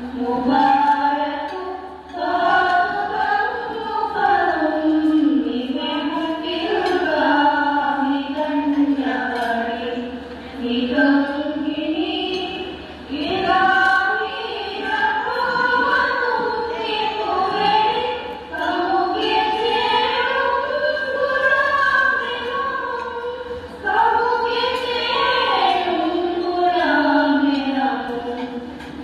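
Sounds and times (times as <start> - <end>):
women singing together: 0.0 - 29.0.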